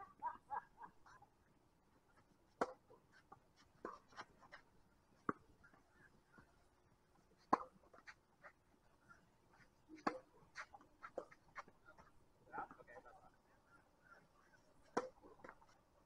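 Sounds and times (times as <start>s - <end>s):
tennis ball struck by rackets: 2.6s - 2.8s, 7.5s - 7.8s, 10.0s - 11.7s, 14.9s - 15.6s.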